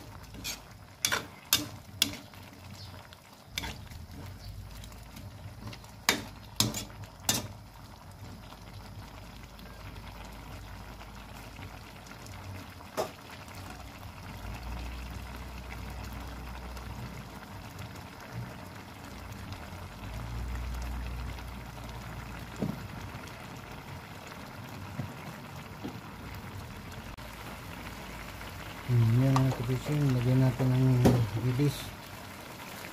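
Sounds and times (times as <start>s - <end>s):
soft bubbling of simmering liquid: 0.0s - 32.9s.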